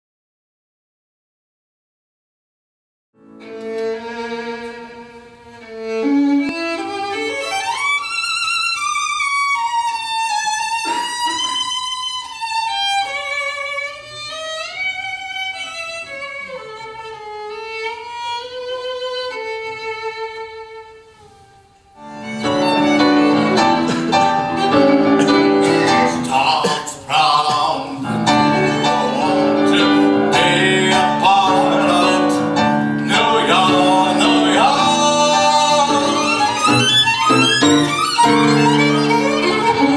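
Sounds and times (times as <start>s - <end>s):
solo violin melody: 3.2s - 26.5s, 28.0s - 39.9s
piano chords: 22.0s - 26.9s, 27.6s - 39.9s.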